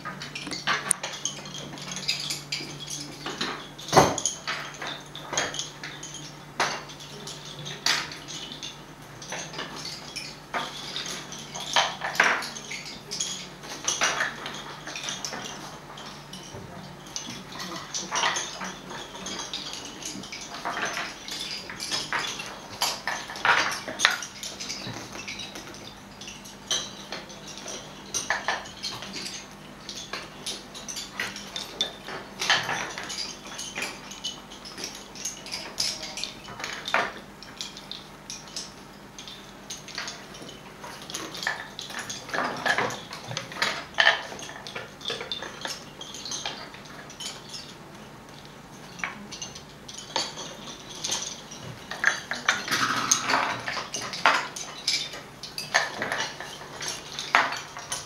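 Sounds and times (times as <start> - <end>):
wooden bobbins clicking: 0.0 - 58.0.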